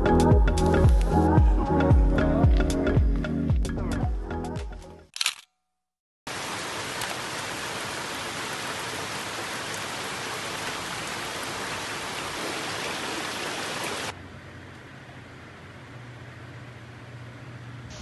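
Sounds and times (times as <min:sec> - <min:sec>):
rain falling on leaves: 0:06.3 - 0:14.2.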